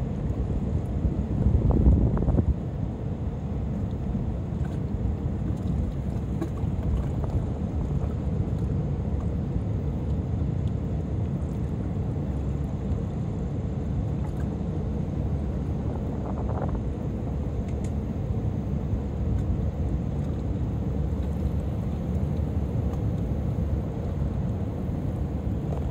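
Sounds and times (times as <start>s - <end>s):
wind buffeting microphone: 0.4s - 2.9s, 15.8s - 17.2s.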